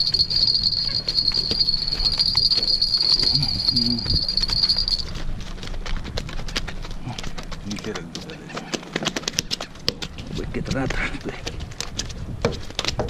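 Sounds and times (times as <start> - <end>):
insect trilling: 0.0 - 5.1.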